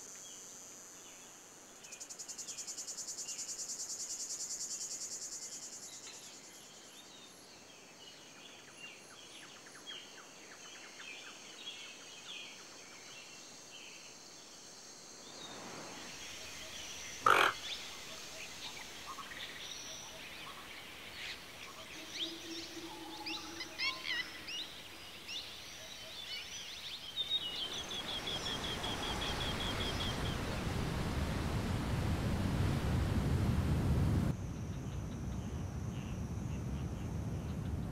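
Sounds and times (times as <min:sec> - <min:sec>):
birds chirping and calling: 0:17.2 - 0:17.8
waterfall rushing: 0:27.4 - 0:34.3.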